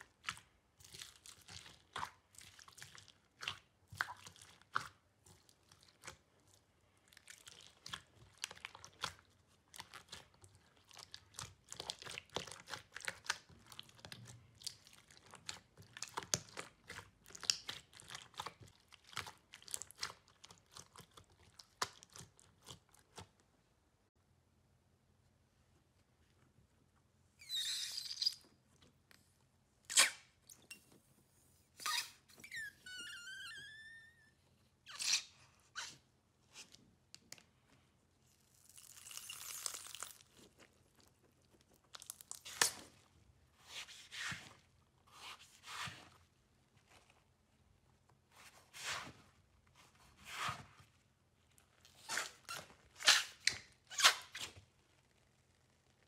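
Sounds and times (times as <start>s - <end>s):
slime squishing: 0.0s - 23.5s, 35.0s - 56.0s
high squeaks: 27.4s - 28.4s, 31.8s - 35.9s.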